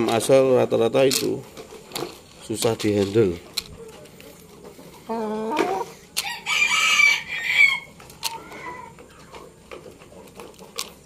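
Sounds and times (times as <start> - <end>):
rooster crowing: 6.2 - 8.9.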